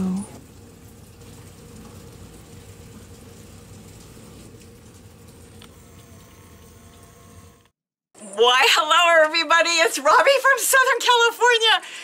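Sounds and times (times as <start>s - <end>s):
rain pattering: 0.0s - 5.8s.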